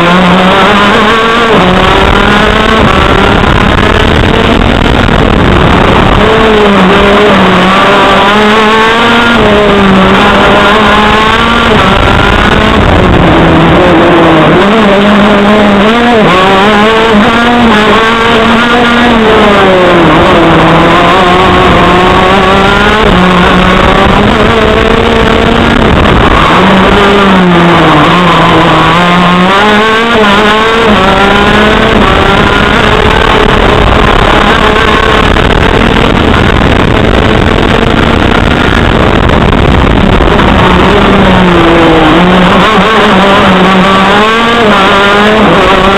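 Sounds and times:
kart engine revving: 0.0s - 45.9s.

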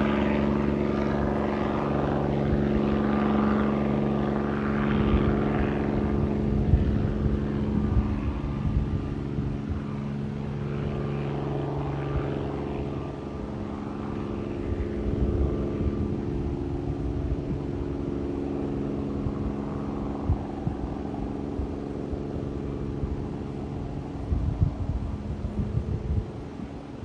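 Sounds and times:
helicopter engine and rotor droning: 0.0s - 27.0s.

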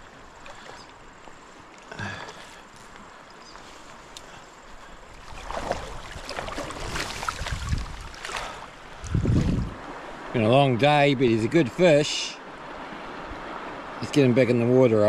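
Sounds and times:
river water running: 0.0s - 15.0s
fish thrashing and splashing: 5.3s - 8.6s.

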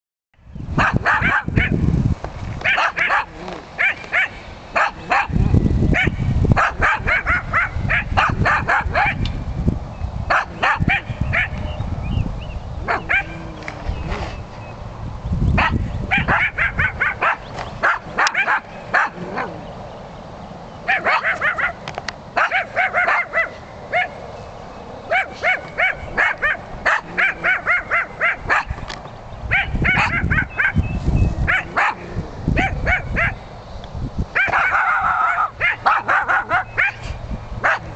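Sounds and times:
dogs barking in high yaps: 0.8s - 1.8s, 2.6s - 9.3s, 10.3s - 11.6s, 12.8s - 13.4s, 15.6s - 19.6s, 20.8s - 24.2s, 25.1s - 28.8s, 29.5s - 30.8s, 31.4s - 33.4s, 34.3s - 37.9s.

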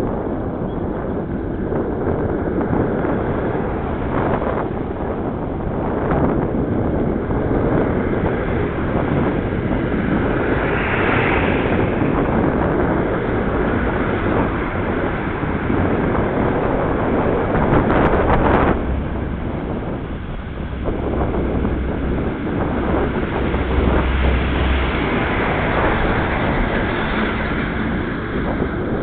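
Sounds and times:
tyre and road noise: 0.0s - 29.0s
wind buffeting microphone: 0.0s - 29.0s
vehicle passing: 7.0s - 29.0s.

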